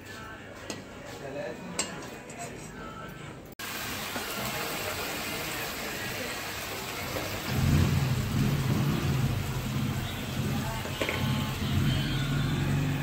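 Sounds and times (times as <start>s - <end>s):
hot oil sizzling: 3.6s - 13.0s.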